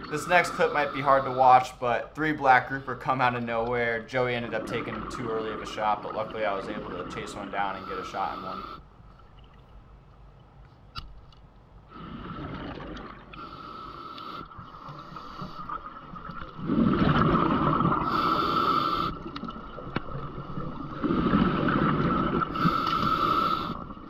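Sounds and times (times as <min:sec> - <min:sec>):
regulator hissing inhalations: 0:00.2 - 0:01.8, 0:07.6 - 0:08.8, 0:18.0 - 0:19.2, 0:22.6 - 0:23.8
bubbling exhalations: 0:15.2 - 0:19.2.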